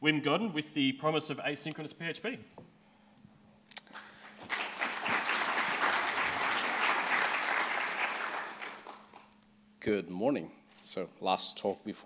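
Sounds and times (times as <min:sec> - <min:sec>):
audience applauding: 0:03.9 - 0:09.3.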